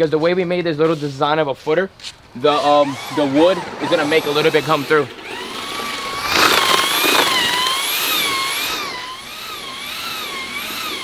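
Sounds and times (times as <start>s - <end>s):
concrete mixer motor whining: 2.3s - 11.0s.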